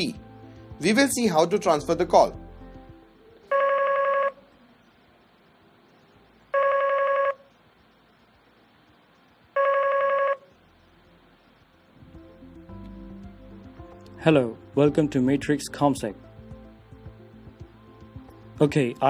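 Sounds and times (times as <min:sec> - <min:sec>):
desk phone ringing: 0:03.5 - 0:04.4, 0:06.6 - 0:07.4, 0:09.6 - 0:10.5.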